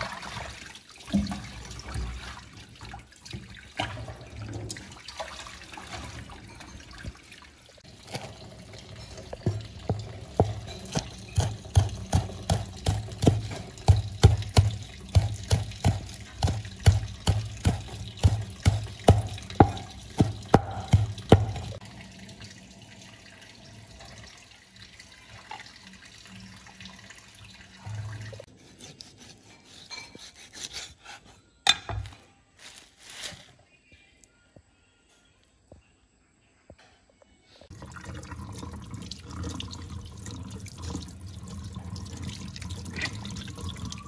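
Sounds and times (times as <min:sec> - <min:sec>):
cleaver chopping on wooden block: 0:10.4 - 0:21.6.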